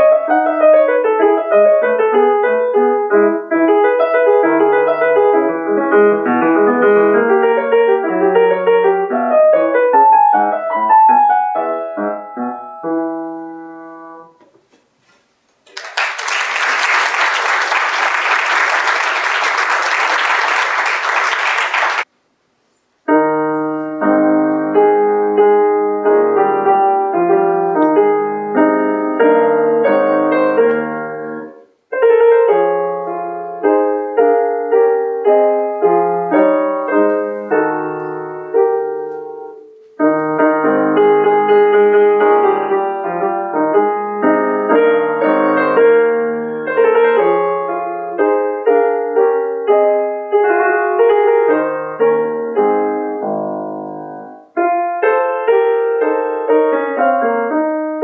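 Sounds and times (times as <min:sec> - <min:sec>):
solo grand piano: 0:00.0 - 0:14.7, 0:23.0 - 0:58.0
audience applause: 0:15.6 - 0:22.1.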